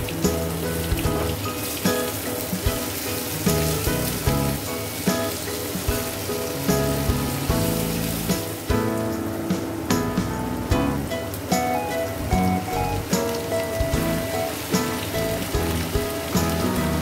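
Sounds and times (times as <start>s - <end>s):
background music with steady beat: 0.0s - 17.0s
continuous hiss: 0.0s - 17.0s.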